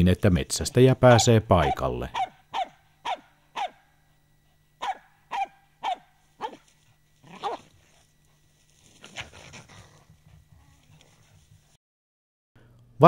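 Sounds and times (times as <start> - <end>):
dog barking sharply: 1.1 - 3.8, 4.8 - 6.6.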